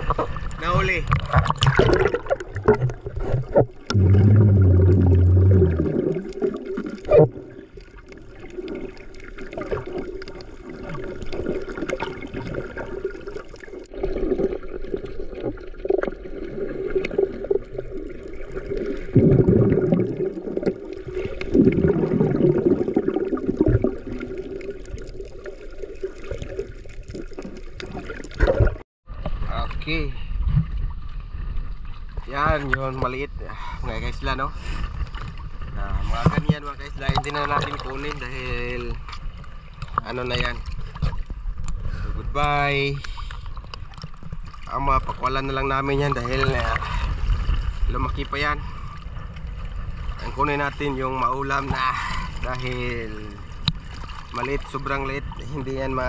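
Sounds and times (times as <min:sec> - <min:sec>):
water sloshing and gurgling: 0:00.0 - 0:56.0
low hum: 0:03.9 - 0:07.7.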